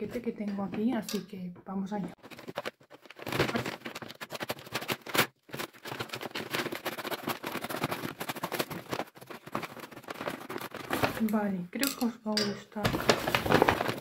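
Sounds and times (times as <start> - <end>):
paper packaging crinkling and tearing: 2.2 - 11.4, 12.9 - 14.0.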